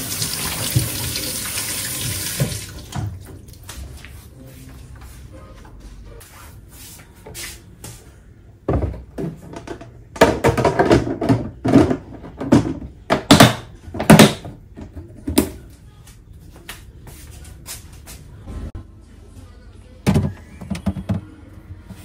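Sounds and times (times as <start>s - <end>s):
plastic containers knocking and clattering: 8.7s - 15.6s, 20.0s - 21.3s.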